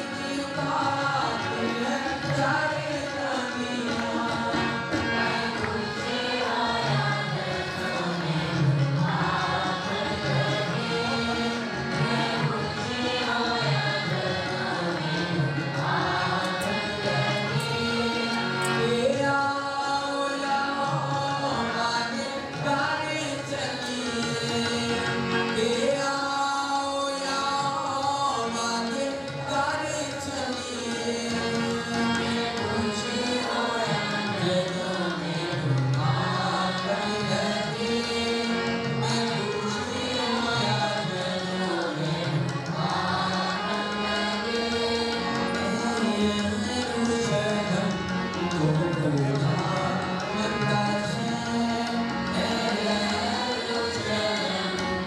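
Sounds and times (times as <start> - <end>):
instrumental accompaniment: 0.0 - 55.0
group singing a hymn: 2.6 - 18.8, 42.8 - 45.8.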